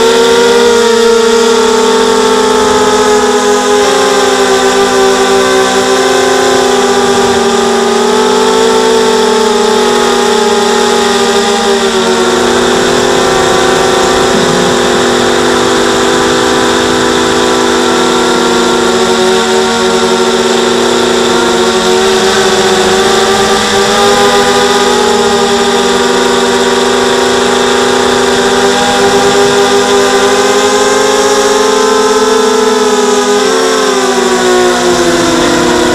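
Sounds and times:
quadcopter propellers whining: 0:00.0 - 0:35.9.

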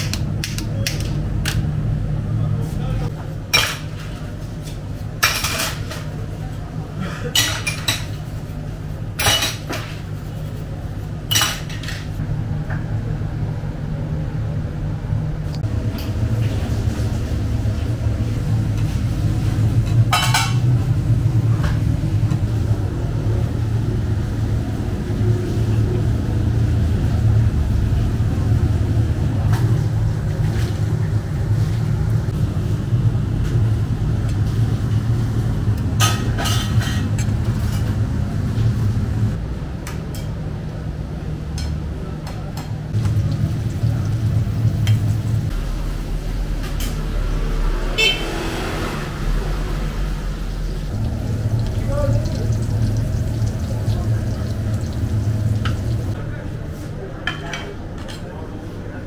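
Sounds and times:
metal dishes clinking in sink: 0:03.5 - 0:04.1, 0:07.2 - 0:08.2, 0:09.2 - 0:09.9, 0:20.0 - 0:20.7, 0:36.0 - 0:37.9
steady low rumble: 0:12.2 - 0:39.8, 0:49.4 - 0:56.4.

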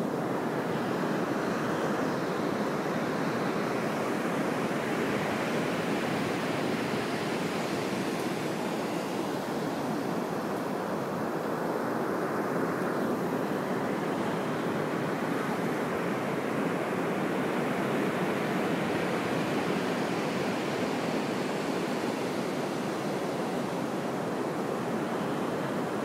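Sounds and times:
ocean surf washing onto beach: 0:00.0 - 0:26.0.

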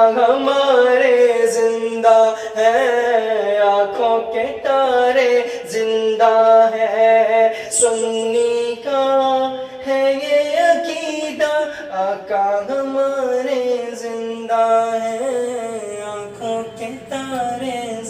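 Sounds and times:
man singing unaccompanied: 0:00.0 - 0:18.0
steady vocal drone: 0:13.9 - 0:18.0.

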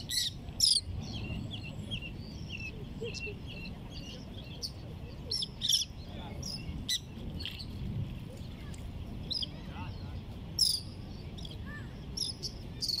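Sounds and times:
wind and water rushing: 0:04.8 - 0:12.9.

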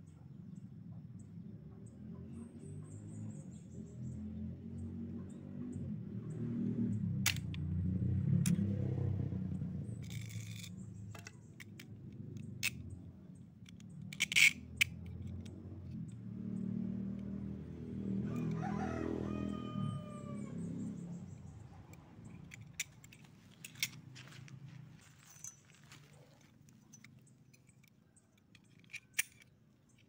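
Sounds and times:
metal parts clicking and scraping: 0:07.2 - 0:07.6, 0:09.8 - 0:16.2, 0:21.2 - 0:30.0
sharp metallic clinks: 0:20.9 - 0:30.0.

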